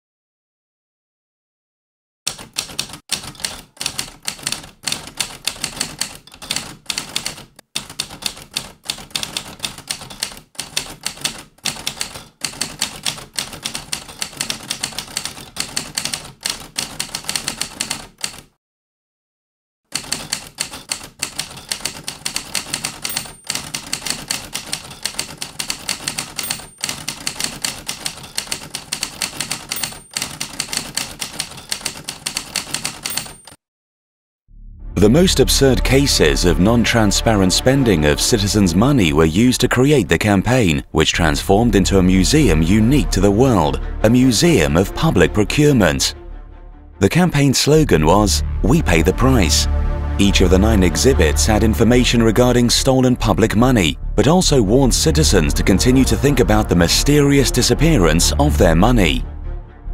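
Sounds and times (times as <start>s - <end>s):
typewriter keys clacking: 2.3s - 18.5s, 19.9s - 33.6s.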